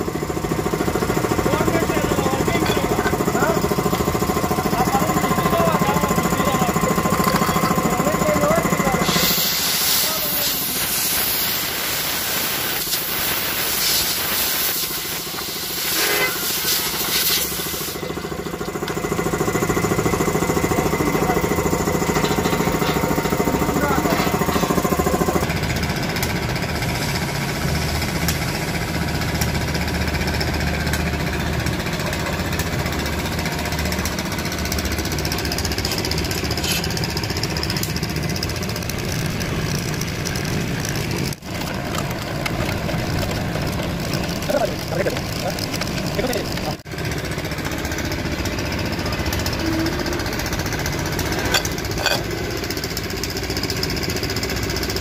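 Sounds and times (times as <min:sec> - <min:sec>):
compressed air hissing: 0:08.9 - 0:18.3.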